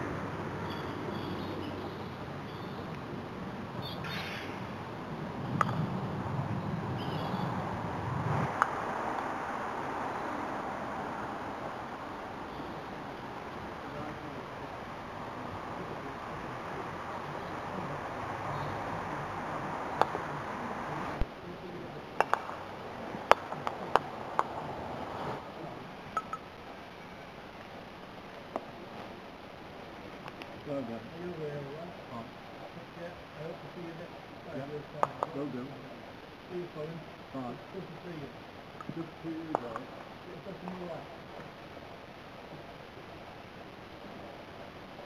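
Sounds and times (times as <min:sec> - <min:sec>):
background hiss: 0:00.0 - 0:45.0
outdoor background noise: 0:00.0 - 0:45.0
bird chirps: 0:00.6 - 0:02.9, 0:03.8 - 0:04.6, 0:07.0 - 0:07.5
croquet mallet striking ball: 0:22.2 - 0:22.6, 0:23.2 - 0:24.6.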